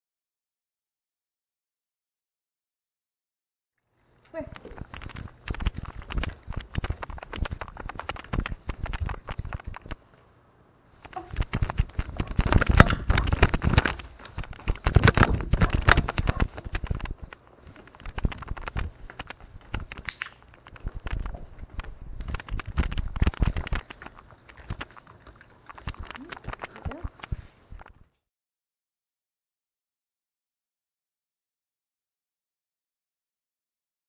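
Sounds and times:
camera rubbing against fur: 0:04.4 - 0:10.1, 0:11.0 - 0:28.0.

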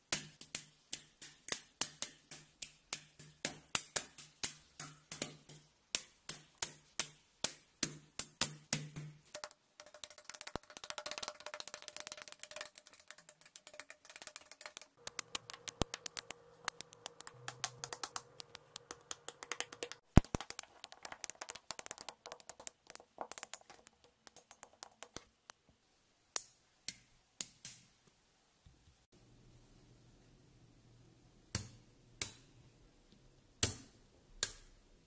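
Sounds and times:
magnetic pieces clicking together: 0:15.0 - 0:25.6.

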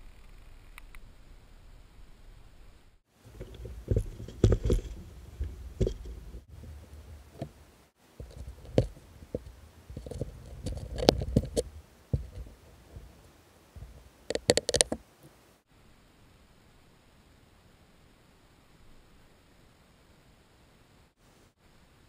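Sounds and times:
sharp clicks: 0:13.8 - 0:15.4.

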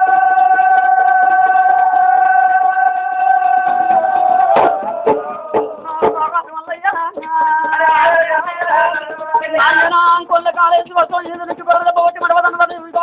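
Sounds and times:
sharp percussive strikes: 0:03.5 - 0:13.0.

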